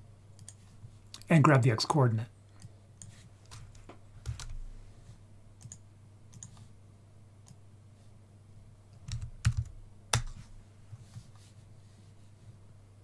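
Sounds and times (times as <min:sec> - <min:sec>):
computer keyboard keystrokes: 0:02.6 - 0:04.6, 0:05.6 - 0:06.6, 0:09.0 - 0:10.4.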